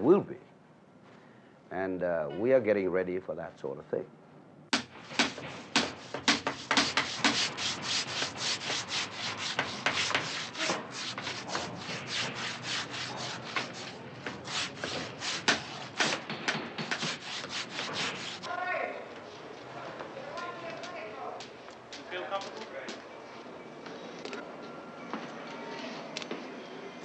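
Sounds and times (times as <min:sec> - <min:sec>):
hand sanding strokes: 0:04.8 - 0:18.5.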